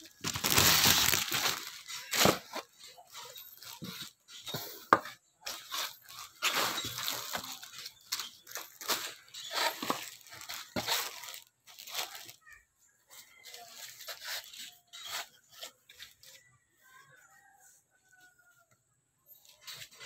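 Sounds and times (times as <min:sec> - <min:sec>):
plastic packaging crinkling: 0:00.0 - 0:04.2, 0:05.5 - 0:12.5, 0:13.4 - 0:16.2.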